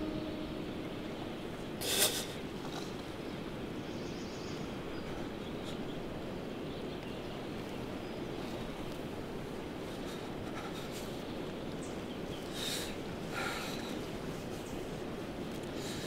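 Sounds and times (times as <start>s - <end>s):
low even rush: 0.0s - 1.8s.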